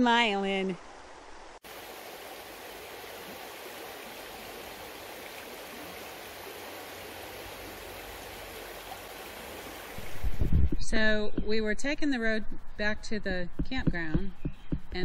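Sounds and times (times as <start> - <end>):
stream running over rocks: 0.0 - 10.4.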